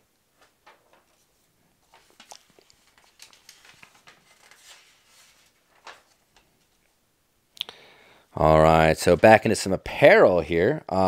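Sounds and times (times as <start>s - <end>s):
paper pages rustling: 0.4s - 7.0s.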